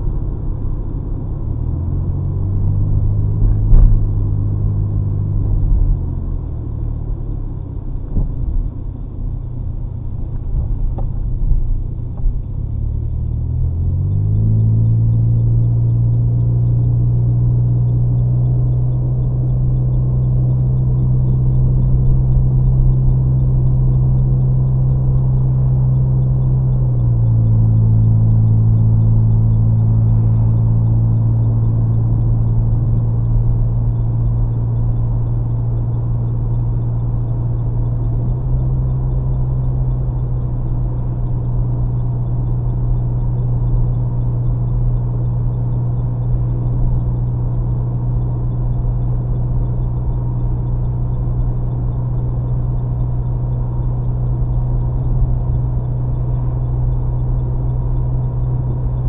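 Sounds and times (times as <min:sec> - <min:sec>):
car engine and exhaust drone: 0:00.0 - 0:59.0
thump: 0:03.6 - 0:04.2.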